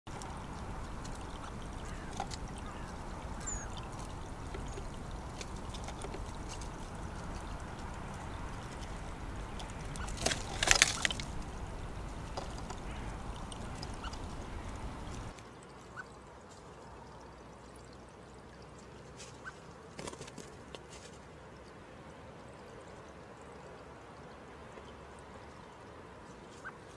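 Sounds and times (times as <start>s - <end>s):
faint ticks: 0.1s - 15.4s
water trickling from a spout: 0.1s - 20.0s, 20.6s - 26.9s.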